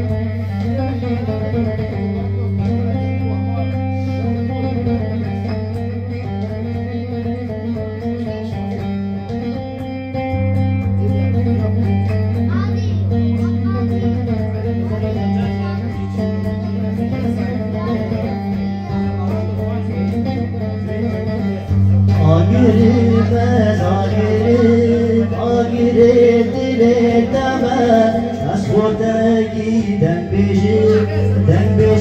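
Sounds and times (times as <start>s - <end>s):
electric lute plucked melody: 0.0s - 32.0s
man singing folk melody: 22.1s - 32.0s.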